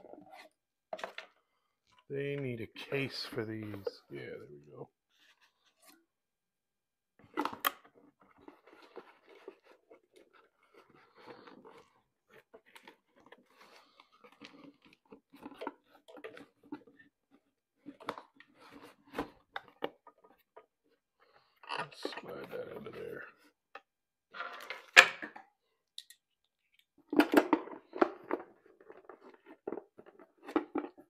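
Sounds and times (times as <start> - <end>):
rustling and scraping on cardboard: 5.1 - 6.0, 8.1 - 21.7.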